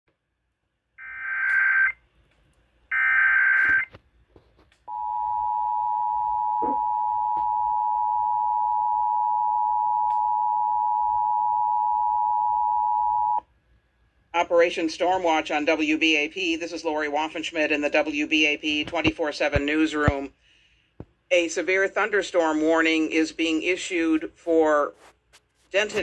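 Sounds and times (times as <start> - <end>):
harsh data-like bursts: 1.0 - 2.0
two-tone attention signal: 3.0 - 3.9, 4.9 - 13.4.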